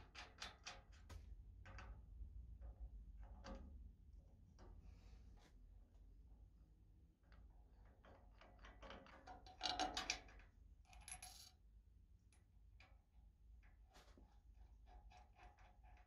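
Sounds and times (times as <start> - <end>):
small metal clicks and taps: 8.0 - 11.5.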